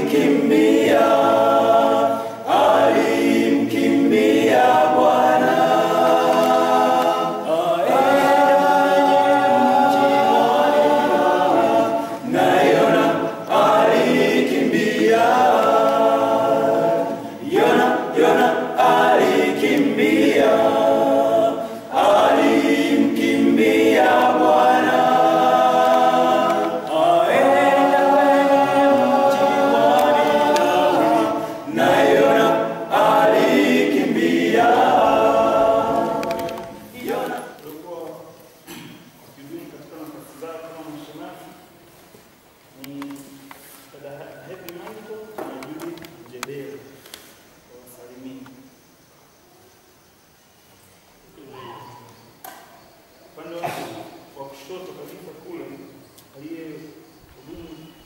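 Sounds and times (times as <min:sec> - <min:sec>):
men's choir singing a hymn: 0:00.0 - 0:41.7, 0:53.3 - 0:58.0.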